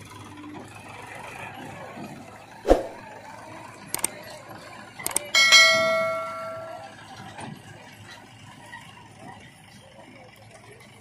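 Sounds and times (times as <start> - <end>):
ringing metallic clang: 5.4 - 7.0.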